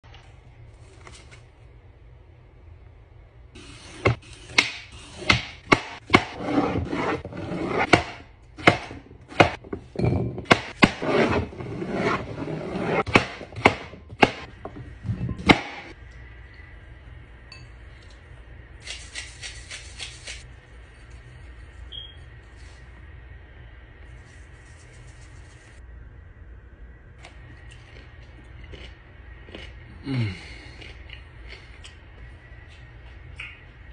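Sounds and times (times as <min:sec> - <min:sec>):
knife chopping on cutting board: 0:12.8 - 0:14.5
knife slicing and scraping: 0:18.8 - 0:21.5.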